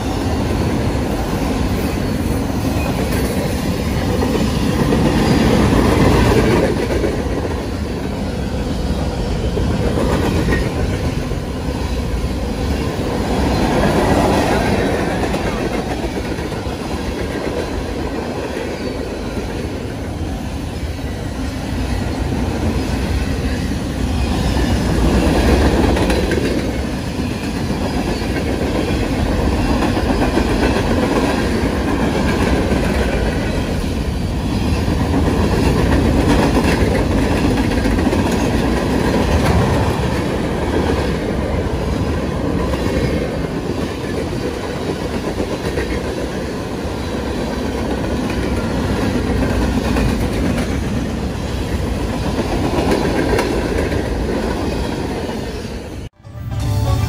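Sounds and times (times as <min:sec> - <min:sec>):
freight train cars rolling past: 0:00.0 - 0:57.0.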